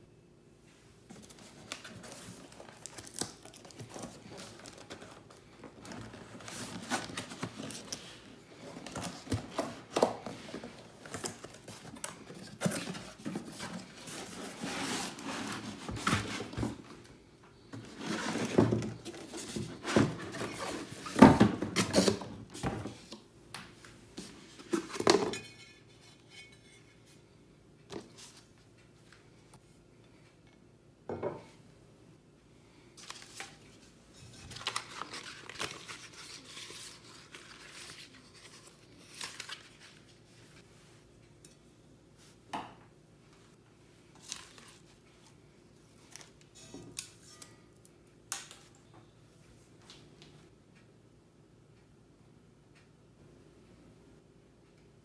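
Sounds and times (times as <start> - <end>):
cardboard rustling and scraping: 1.1 - 23.1.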